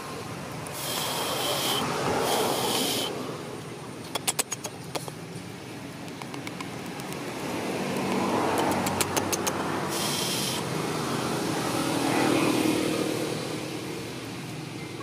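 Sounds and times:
motor vehicle passing: 0.0 - 15.0
brief hiss: 0.7 - 3.2, 9.9 - 10.6
sharp clicks: 4.0 - 5.2, 6.0 - 7.3, 7.9 - 9.6.

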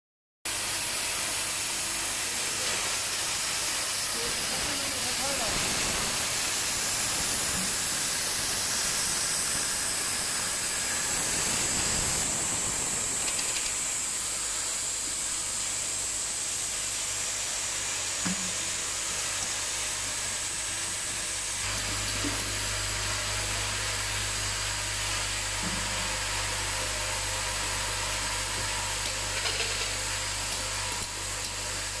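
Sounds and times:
printing machine hissing: 2.4 - 14.2.

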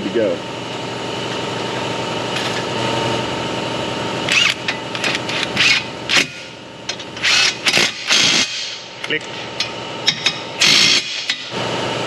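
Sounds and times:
steady mechanical hum: 0.0 - 12.0
power tool whirring in bursts: 4.2 - 8.9, 10.6 - 11.5.

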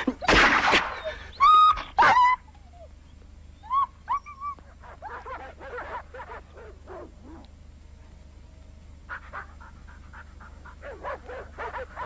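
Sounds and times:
dogs yelping: 0.0 - 3.0, 3.6 - 7.5, 9.1 - 12.0
distant dogs barking: 1.9 - 7.7, 8.5 - 12.0.

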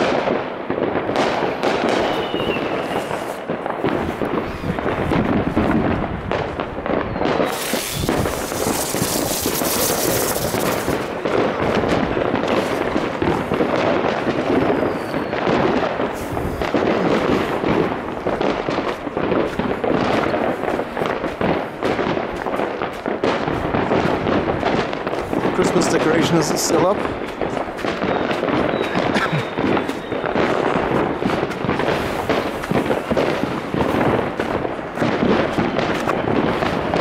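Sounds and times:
fireworks crackling and banging: 0.0 - 37.0
loud hiss: 7.4 - 11.1.

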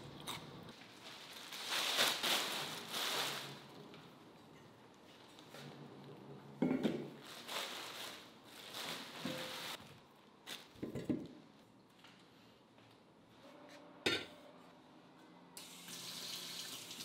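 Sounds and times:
plastic bag rustling: 0.8 - 3.9, 7.1 - 10.8.

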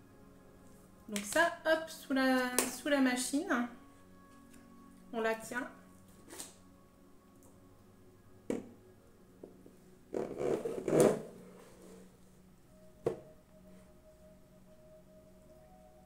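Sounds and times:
faint steady tone: 11.4 - 16.0.

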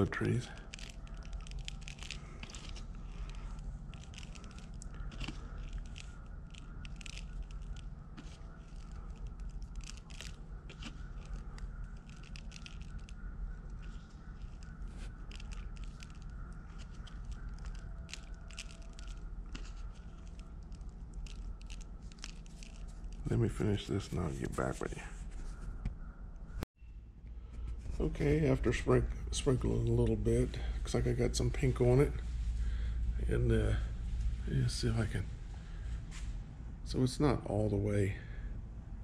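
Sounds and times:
grains crunching and pattering: 0.0 - 25.1
steady low hum: 0.0 - 39.0.

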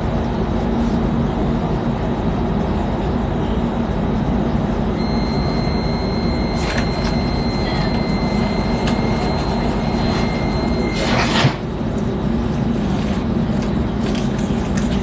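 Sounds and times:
electric train rumble: 0.0 - 15.0
high whine: 4.9 - 14.2.

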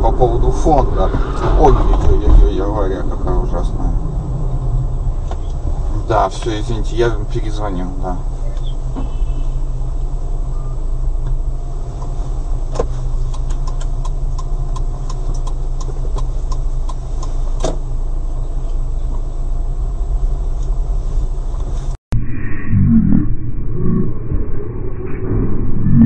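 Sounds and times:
car engine idling: 0.0 - 22.0.

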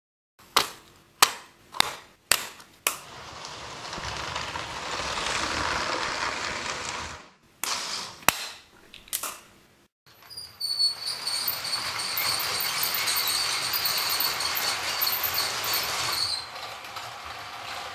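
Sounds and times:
toy train running on track: 3.3 - 7.3, 10.2 - 17.9.

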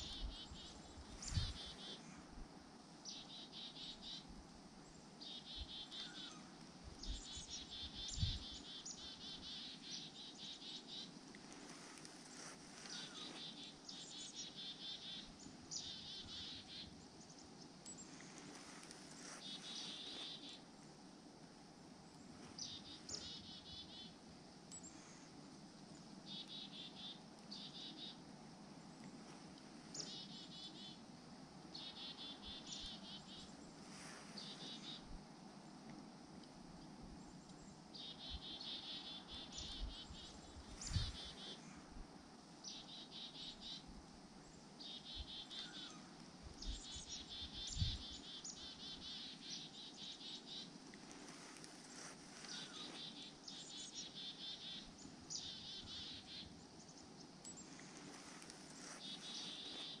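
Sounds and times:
songbirds trilling: 0.0 - 2.0, 4.9 - 20.7, 22.2 - 25.1, 37.3 - 41.6, 42.6 - 60.0.

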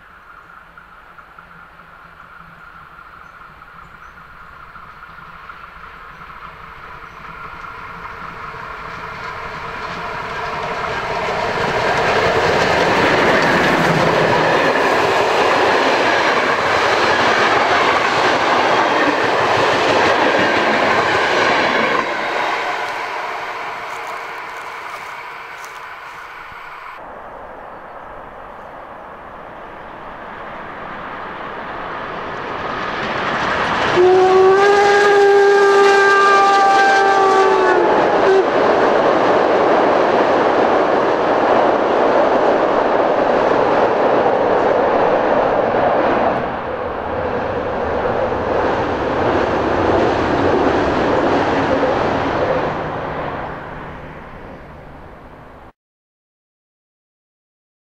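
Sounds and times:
train coaches rumbling on bridge: 0.0 - 55.7
steam locomotive whistle: 33.8 - 38.7.

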